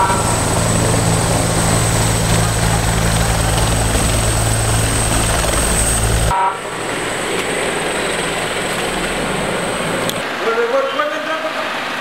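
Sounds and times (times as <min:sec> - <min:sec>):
helicopter rotor drone: 0:00.0 - 0:10.2
vehicle driving rumble: 0:00.0 - 0:10.3.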